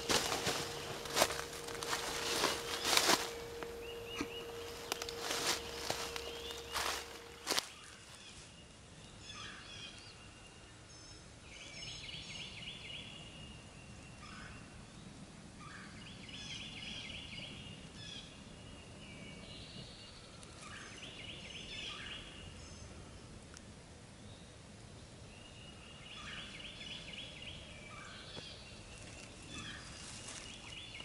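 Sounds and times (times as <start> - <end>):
bird chirps: 0.0 - 7.7
bird trilling: 0.0 - 7.7.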